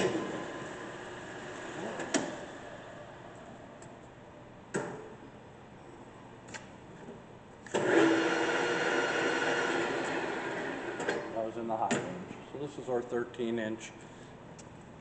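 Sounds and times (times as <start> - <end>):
lathe running: 0.0 - 3.2, 7.7 - 11.3
lathe gear whine and motor hum: 0.0 - 3.8, 7.7 - 11.4.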